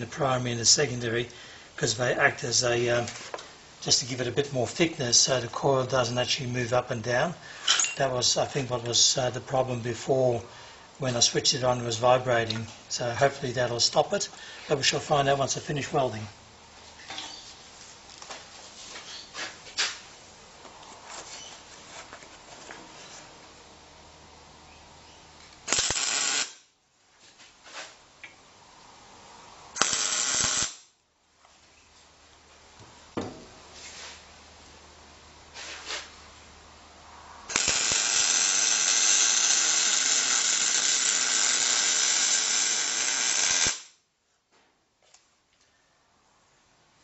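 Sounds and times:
welder arc crackling: 25.4s - 26.7s, 29.7s - 31.0s, 37.4s - 44.0s.

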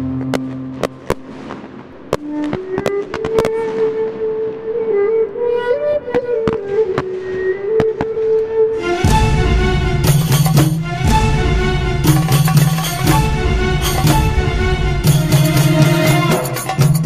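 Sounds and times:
slow melody of held notes: 0.0s - 10.0s
fireworks bursting: 0.0s - 17.0s.

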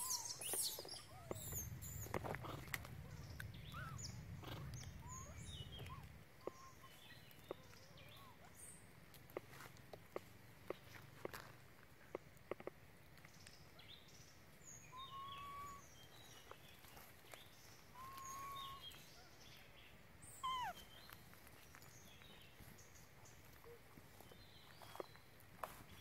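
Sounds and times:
baby monkey coo calls: 0.0s - 8.6s, 14.9s - 15.9s, 17.9s - 19.0s, 20.3s - 20.9s.

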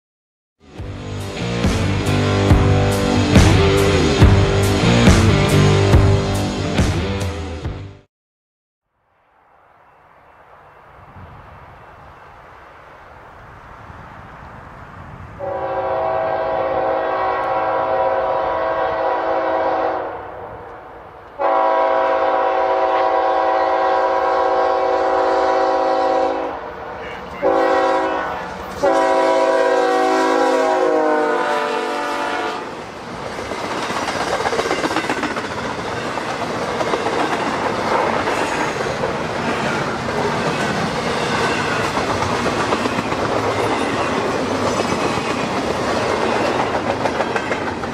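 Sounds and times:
train wheels rumbling on rail: 0.7s - 7.3s, 21.2s - 47.9s
locomotive air horn blasts: 15.4s - 20.2s, 21.4s - 26.6s, 27.4s - 32.7s
wheels clacking over rail joints: 33.2s - 47.9s.

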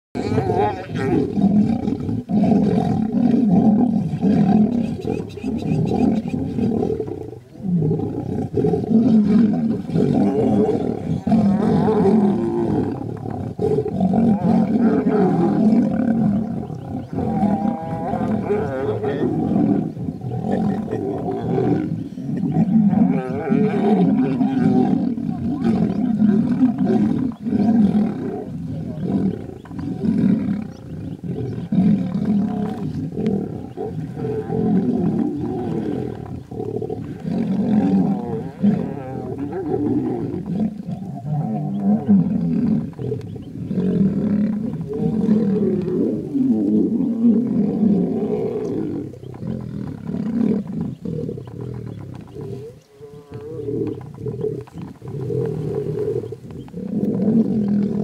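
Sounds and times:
lions roaring: 0.2s - 58.0s.

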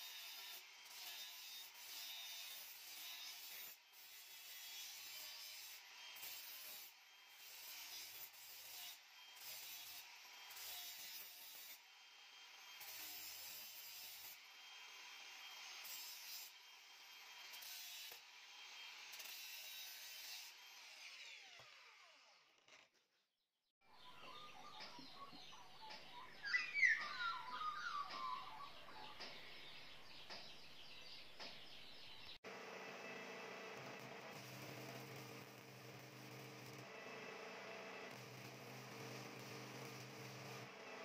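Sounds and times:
angle grinder grinding steel: 0.0s - 22.6s, 32.5s - 41.0s
grinder winding down whine: 32.5s - 41.0s.

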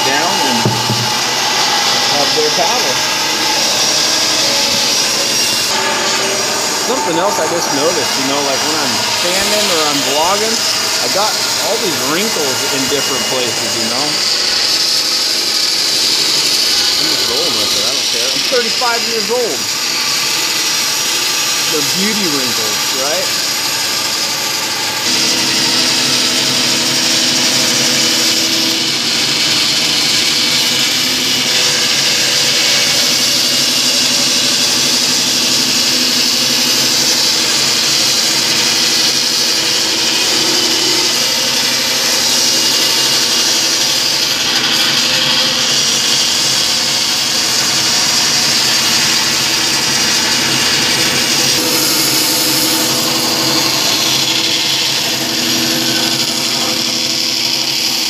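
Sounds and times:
band saw cutting wood: 0.0s - 58.0s.

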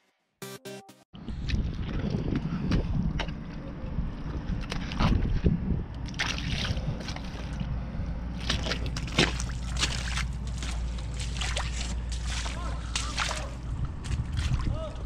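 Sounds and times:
low rumble: 1.2s - 15.0s
boots squelching through mud: 6.0s - 7.7s, 8.3s - 15.0s.

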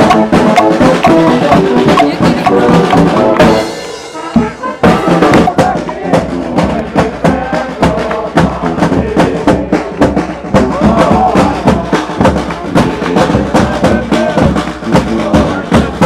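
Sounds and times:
trombone: 0.0s - 6.8s
steady drum beat: 0.0s - 16.0s
tuba: 0.0s - 16.0s.

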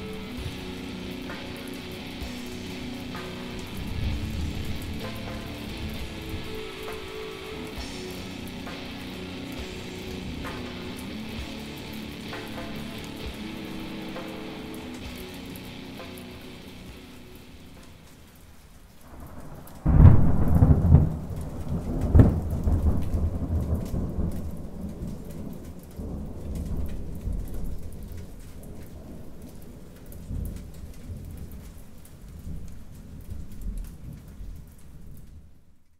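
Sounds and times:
sharp crack: 0.0s - 31.8s
faint crackling hiss: 0.0s - 35.9s
low rolling rumble: 2.1s - 6.9s.

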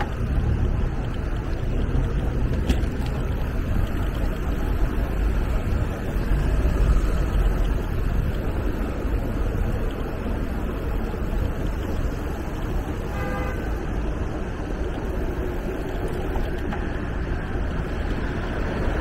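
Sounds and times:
road traffic: 0.0s - 19.0s
wind rumble on microphone: 0.0s - 19.0s
car horn toot: 13.1s - 13.8s.

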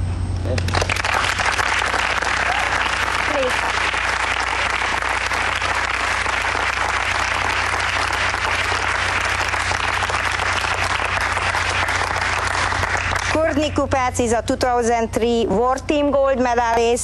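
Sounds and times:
crowd applause: 0.5s - 13.6s.

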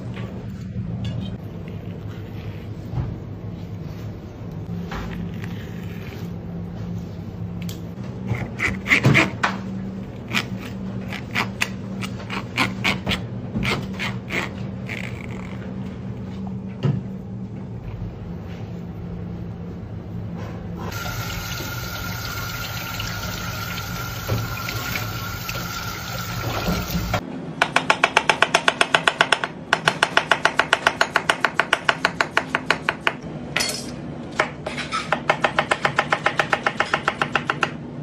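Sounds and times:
tap running into sink: 20.9s - 27.2s.

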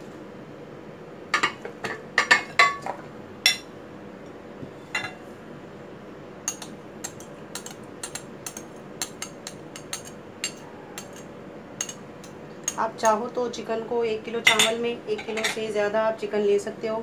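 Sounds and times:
spoon and strainer clinking on a pot: 6.5s - 13.2s, 14.4s - 15.6s.

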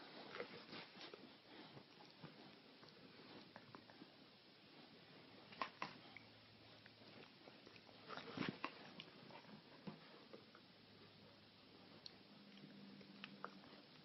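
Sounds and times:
dogs scuffling and mouthing: 0.0s - 4.2s, 5.4s - 10.6s.

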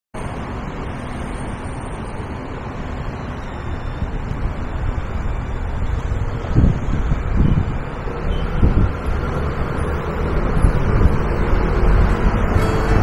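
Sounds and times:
passing vehicles: 0.2s - 13.0s
wind buffeting microphone: 3.8s - 13.0s.

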